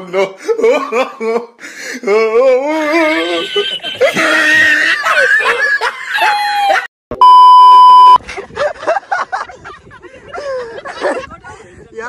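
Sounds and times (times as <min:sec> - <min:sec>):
man laughing: 0:00.0 - 0:06.9, 0:08.2 - 0:11.4
censor bleep tone: 0:07.2 - 0:08.2.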